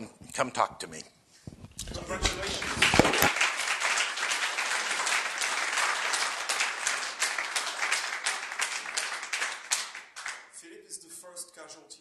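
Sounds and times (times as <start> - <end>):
audience applauding: 2.0 - 10.5.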